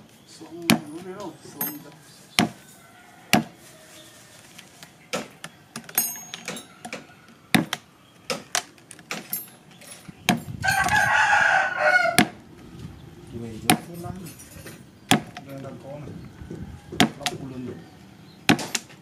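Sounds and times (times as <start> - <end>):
rooster crowing: 1.8 - 4.6, 6.3 - 8.0, 10.6 - 12.8, 16.1 - 18.1
mallet striking chisel into wood: 17.0 - 17.3.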